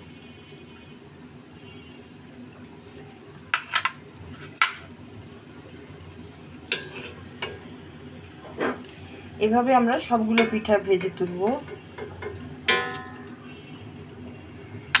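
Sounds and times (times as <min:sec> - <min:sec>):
frying oil bubbling: 0:00.0 - 0:15.0
utensil knocking on steel wok: 0:10.3 - 0:13.2.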